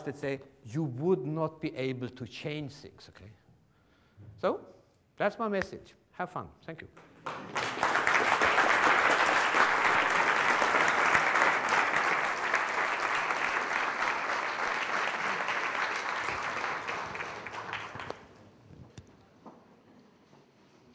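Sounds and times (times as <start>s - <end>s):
audience applauding: 7.0s - 18.4s.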